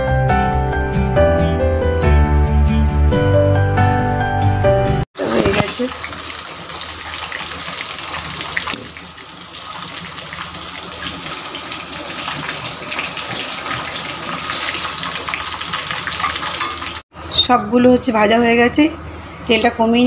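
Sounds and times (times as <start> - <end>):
meat deep-frying in oil: 5.2 - 17.0.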